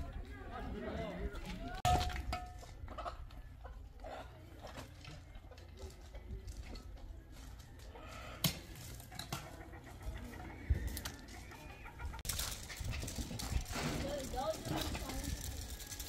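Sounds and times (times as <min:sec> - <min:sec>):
birds clucking: 0:07.7 - 0:15.0.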